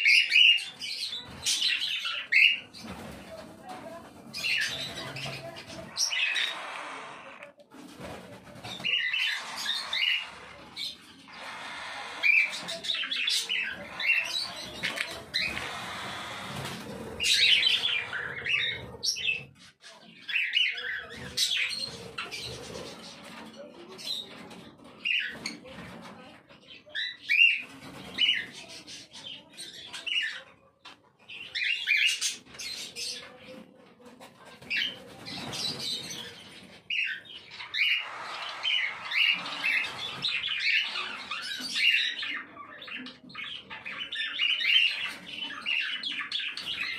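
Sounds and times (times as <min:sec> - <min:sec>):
cockatiel chicks calling: 0:04.3 - 0:07.6, 0:08.2 - 0:19.5, 0:34.7 - 0:46.9.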